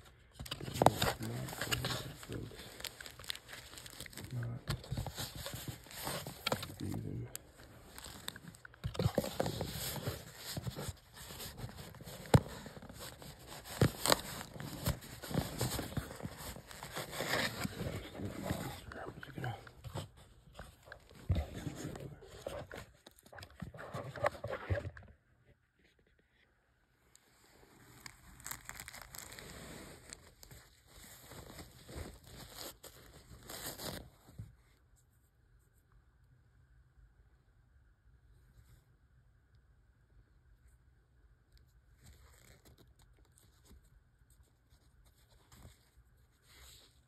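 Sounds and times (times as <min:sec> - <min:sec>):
tissue paper rustling: 0:00.0 - 0:23.0, 0:27.3 - 0:34.4
cardboard box scraping: 0:07.9 - 0:22.8.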